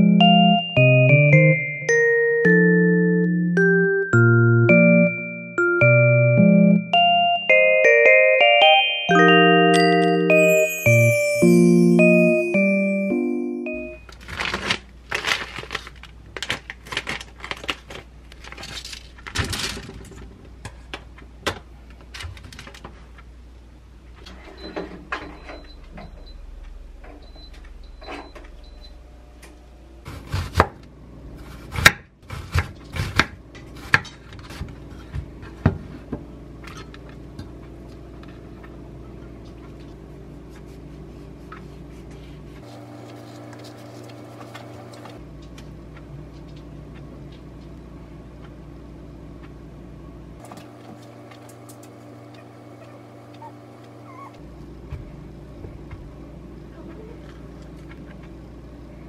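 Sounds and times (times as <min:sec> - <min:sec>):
plastic packaging crinkling: 0:14.1 - 0:19.4
faint high beeps: 0:24.6 - 0:29.0
steady low hum: 0:25.0 - 0:30.1
knife chopping on wooden board: 0:31.5 - 0:34.0.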